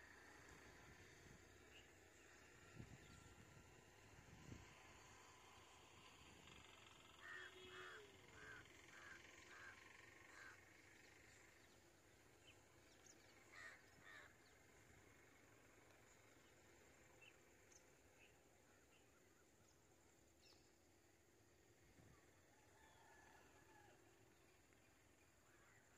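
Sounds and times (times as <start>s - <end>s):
outdoor background noise: 0.0s - 25.9s
crow cawing: 7.2s - 10.6s, 13.5s - 14.3s.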